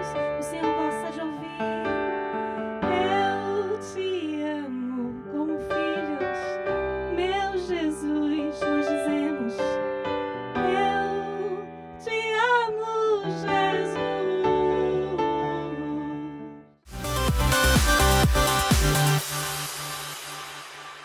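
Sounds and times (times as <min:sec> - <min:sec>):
woman singing into a microphone: 0:00.0 - 0:09.8, 0:10.6 - 0:16.6
sustained instrumental chords: 0:16.9 - 0:21.0.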